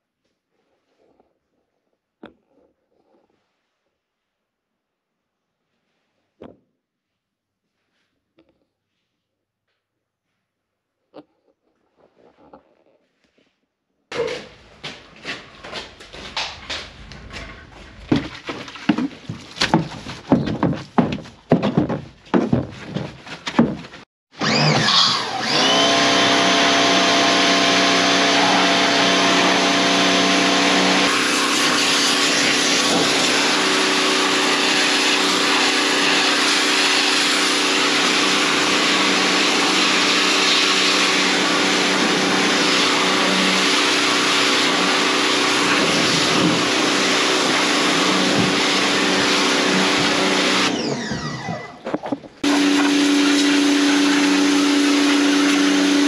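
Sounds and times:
pressure washer motor hum: 24.4 - 56.0.

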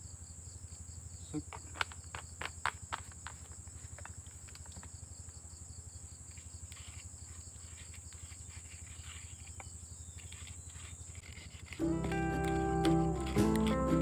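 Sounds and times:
insect chirring: 0.0 - 14.0
pestle mashing in mortar: 11.3 - 14.0.

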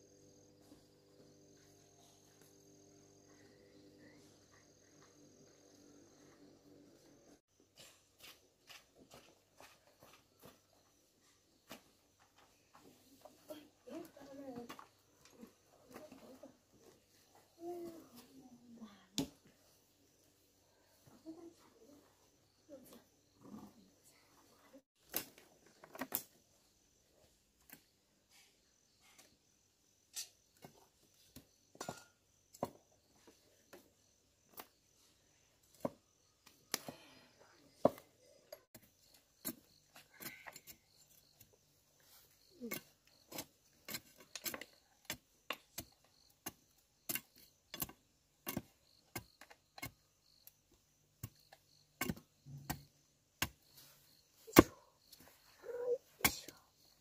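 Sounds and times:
machete whittling bamboo: 54.5 - 54.8.

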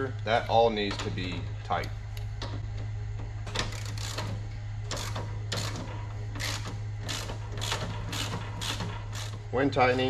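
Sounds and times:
steady low hum: 0.0 - 10.0
ratchet wrench clicking: 3.7 - 4.3, 4.9 - 9.4.

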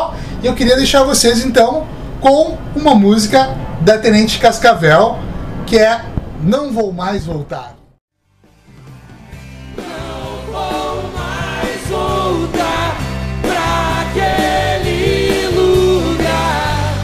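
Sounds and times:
rock song with bass and drums: 8.3 - 17.0.

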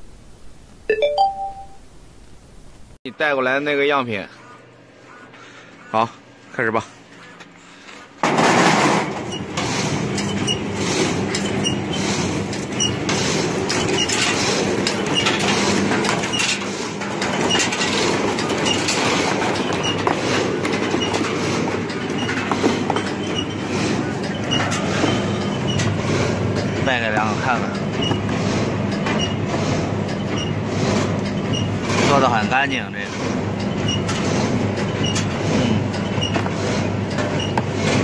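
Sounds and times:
machine mechanical clatter: 8.2 - 38.0.

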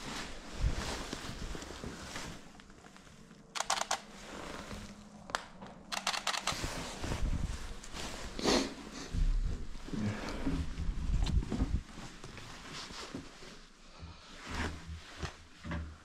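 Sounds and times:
fabric rustling against microphone: 0.0 - 16.0
sharp clicks of camera gear: 3.6 - 4.1, 5.4 - 6.6.

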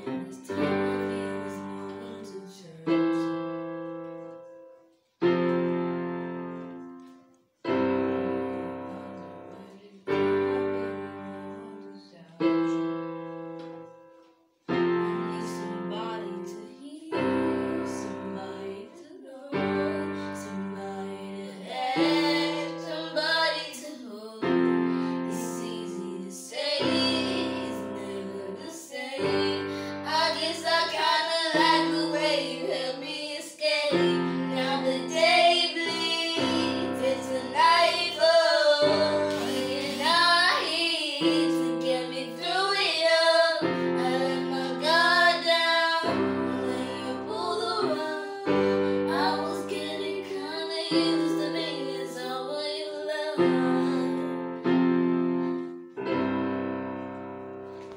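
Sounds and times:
boy singing: 0.0 - 3.4, 8.4 - 12.7, 14.8 - 54.3
electronic keyboard piano chords: 29.2 - 57.9.

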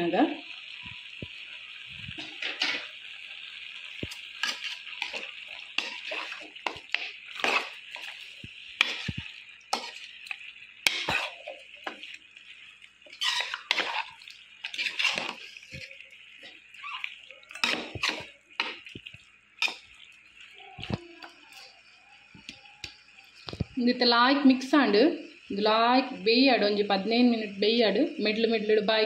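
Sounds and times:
food sizzling in a pan: 0.0 - 29.0
spoon scraping and clinking pan: 4.0 - 8.2, 8.8 - 9.2, 9.8 - 10.1, 10.9 - 12.0, 13.1 - 15.9, 17.5 - 18.8.

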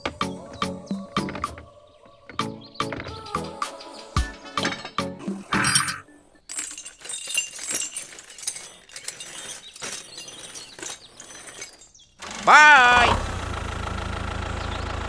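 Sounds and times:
metal hook clinking: 5.6 - 12.0
toy tractor metallic rattles: 5.6 - 12.4.

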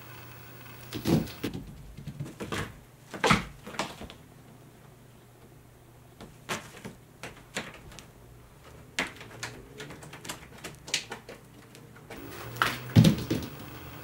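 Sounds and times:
cat claws scraping carpet: 0.0 - 1.5
thump: 12.9 - 13.5.

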